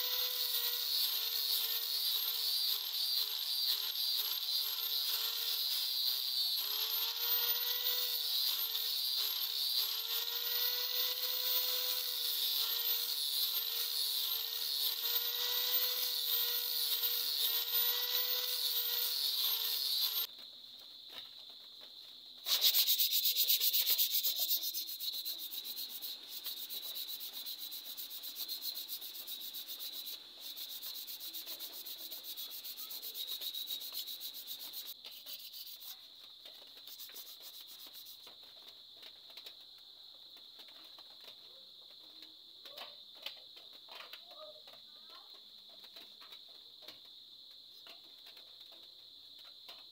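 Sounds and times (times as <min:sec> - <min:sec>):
angle grinder sanding wood: 0:00.0 - 0:20.3, 0:22.5 - 0:36.0
hand sanding rubbing strokes: 0:22.4 - 0:36.1, 0:36.8 - 0:38.2.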